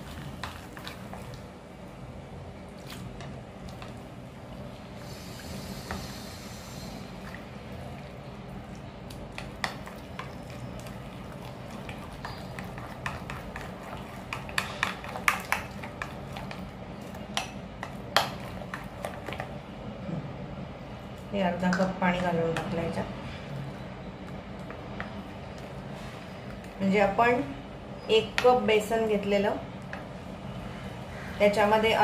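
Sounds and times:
batter squelching: 2.6s - 19.6s.

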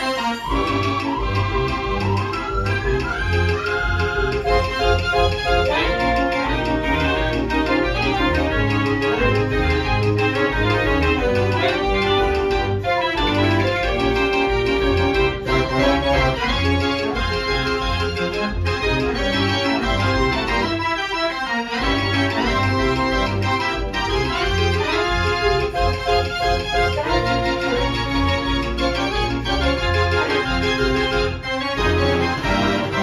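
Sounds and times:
dance organ playing samba: 0.0s - 33.0s.

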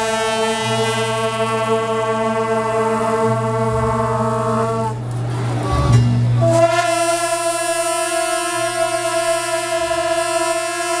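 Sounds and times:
brass band holding a chord: 0.0s - 5.3s, 6.4s - 11.0s.

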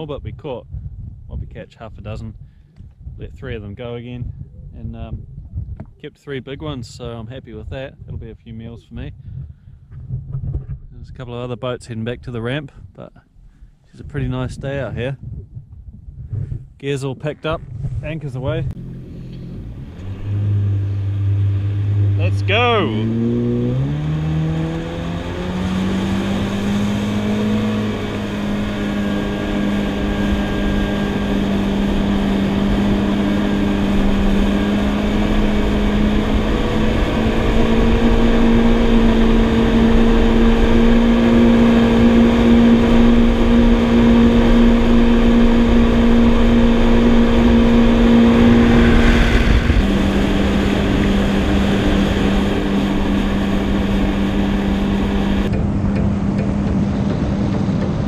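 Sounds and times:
jet ski engine running: 18.2s - 23.4s, 24.2s - 58.0s.

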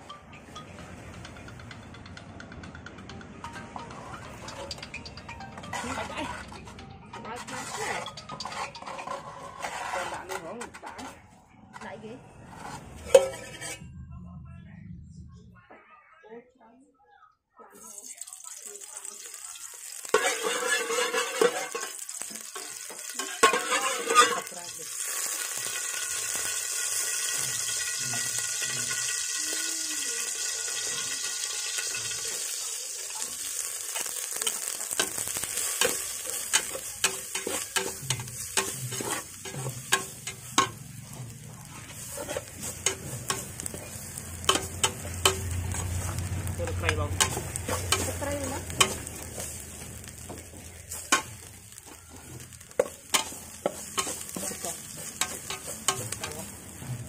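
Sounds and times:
hot oil sizzling: 3.7s - 10.4s, 17.7s - 57.0s
metal ladle scraping a pot: 5.6s - 13.9s, 20.0s - 29.4s, 34.0s - 56.5s.

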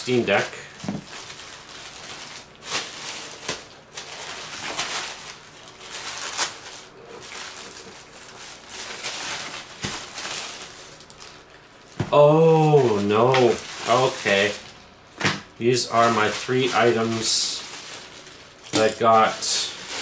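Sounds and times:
plastic mailer bag crinkling: 0.0s - 15.0s, 15.8s - 20.0s.

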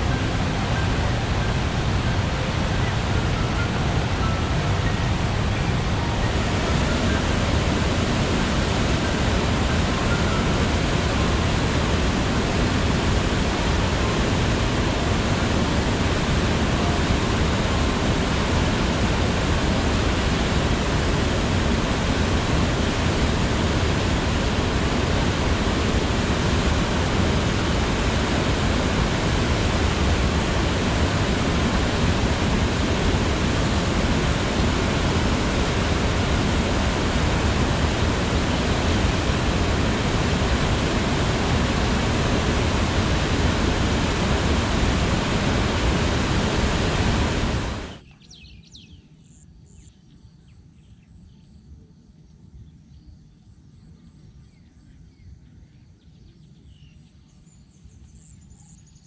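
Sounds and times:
river rapids rushing over rocks: 0.0s - 48.0s.

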